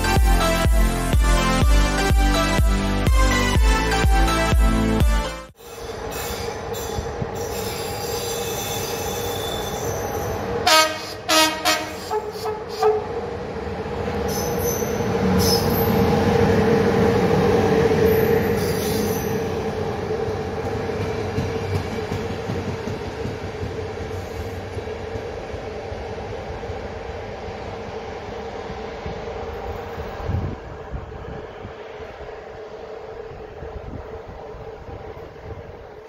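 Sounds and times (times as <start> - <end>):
electric locomotive hum: 0.0 - 36.0
train running noise passing: 5.5 - 36.0
train horn toots: 10.6 - 13.1.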